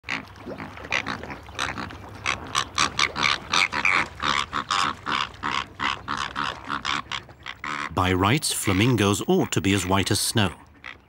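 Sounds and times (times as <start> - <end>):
flamingos honking: 2.7 - 11.0.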